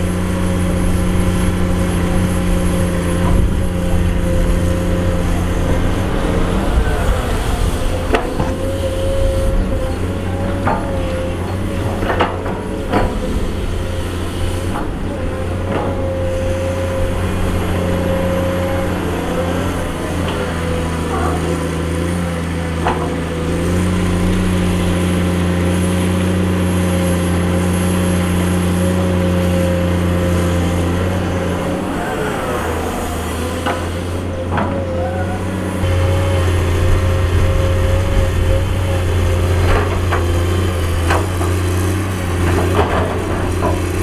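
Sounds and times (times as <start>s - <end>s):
excavator diesel engine running: 0.0s - 44.0s
high-pitched whine: 31.2s - 41.2s.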